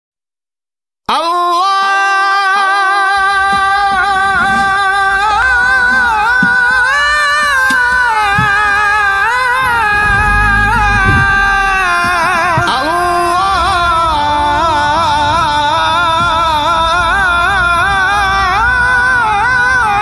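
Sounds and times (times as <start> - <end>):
devotional song sung in held notes: 1.1 - 20.0.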